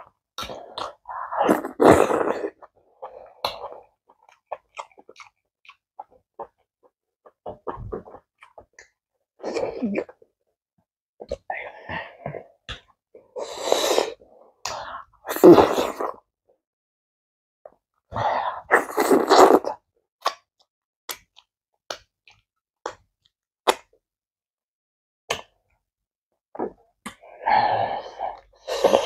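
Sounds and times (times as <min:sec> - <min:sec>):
wet sucking mouth sounds: 0:00.4 - 0:03.8, 0:13.4 - 0:14.2, 0:18.7 - 0:19.8.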